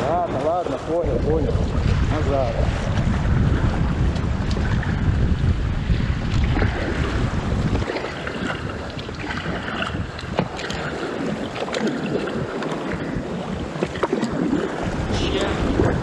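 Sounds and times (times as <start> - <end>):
water splashing against paddleboard: 0.0 - 16.0
wind buffeting microphone: 0.0 - 16.0.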